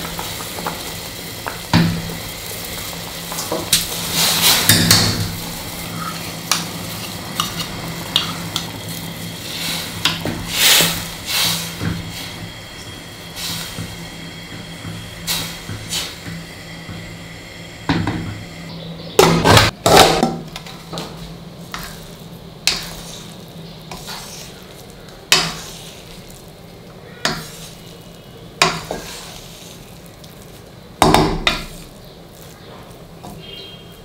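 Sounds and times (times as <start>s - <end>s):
wooden spatula scraping metal pot: 3.3s - 14.0s, 19.5s - 26.4s, 27.2s - 30.0s.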